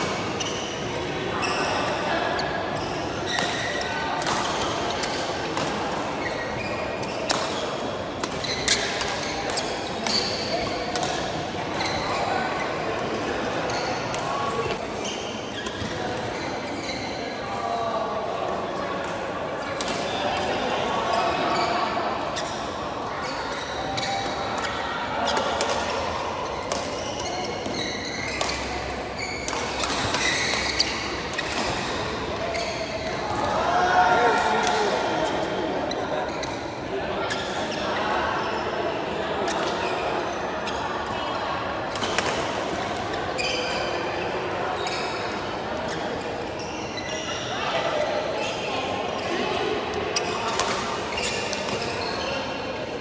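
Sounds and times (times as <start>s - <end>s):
shoes squeaking on court floor: 0.0s - 3.9s, 6.2s - 12.8s, 13.7s - 17.2s, 26.4s - 33.3s, 35.8s - 36.7s, 42.9s - 47.5s, 48.4s - 49.4s, 50.2s - 52.8s.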